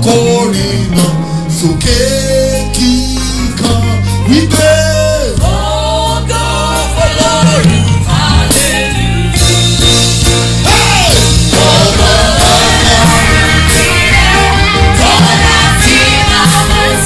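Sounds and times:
man singing lead: 0.0 - 9.1, 10.6 - 11.8
band playing: 0.0 - 17.0
electric bass line: 0.0 - 17.0
backing singers: 10.7 - 17.0.

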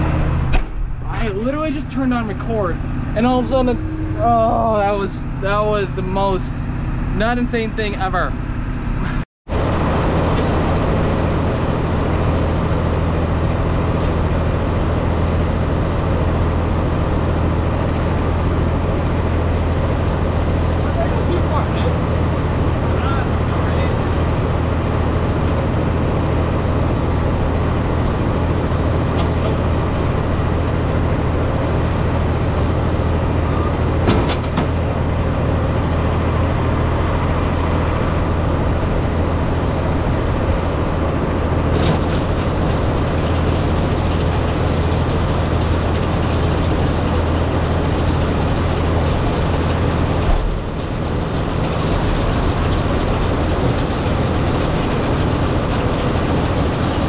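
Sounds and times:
diesel engine running: 0.0 - 57.0
engine knock: 41.8 - 57.0.

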